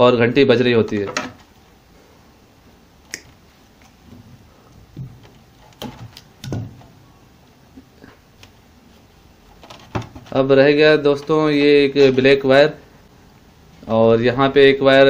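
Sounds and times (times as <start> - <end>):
wire handling noises: 0.7 - 1.7, 3.0 - 7.0, 7.8 - 12.4.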